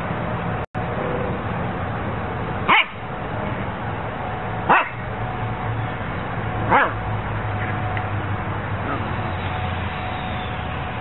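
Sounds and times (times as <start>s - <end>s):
steady background noise: 0.0s - 11.0s
dog barking: 2.7s - 3.0s, 4.7s - 5.0s, 6.7s - 7.0s.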